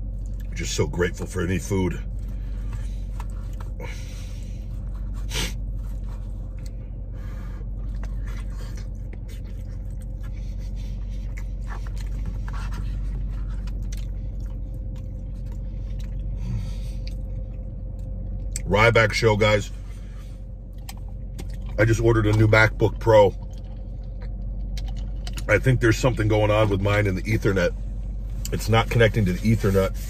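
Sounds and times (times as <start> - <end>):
man chewing food: 0.0 - 0.6, 2.1 - 18.7, 20.5 - 22.5, 23.3 - 25.6
low hum inside a car: 0.0 - 30.0.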